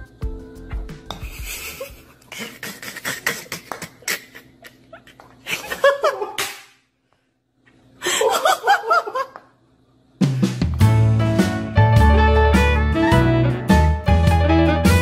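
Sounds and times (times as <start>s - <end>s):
person laughing: 1.2s - 6.5s, 8.0s - 9.4s.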